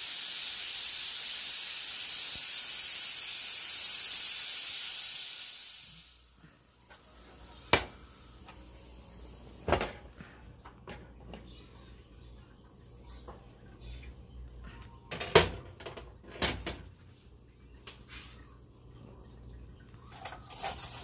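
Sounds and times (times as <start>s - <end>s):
pressure cooker hissing steam: 0.0s - 9.6s.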